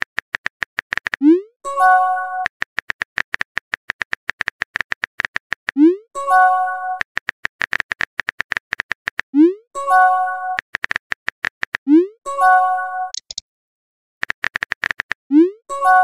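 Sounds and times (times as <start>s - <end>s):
keyboard typing clicks: 0.0s - 1.4s, 2.4s - 6.0s, 6.9s - 9.3s, 10.5s - 11.9s, 13.1s - 13.4s, 14.2s - 15.2s.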